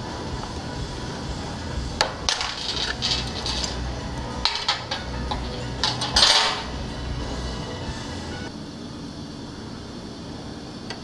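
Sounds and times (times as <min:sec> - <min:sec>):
metal wrenches clinking: 0:02.0 - 0:06.8.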